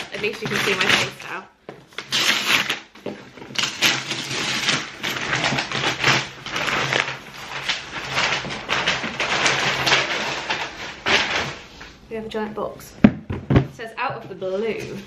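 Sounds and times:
cardboard box being unpacked: 0.0s - 11.8s
packing rustling and crinkling: 0.0s - 12.0s.

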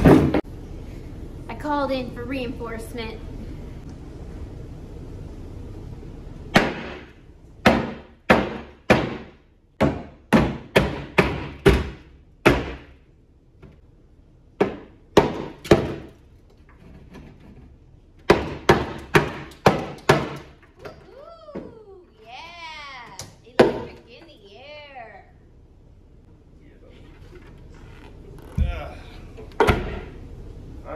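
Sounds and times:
hammer striking wood: 6.5s - 13.0s, 14.6s - 16.1s, 18.3s - 20.6s.

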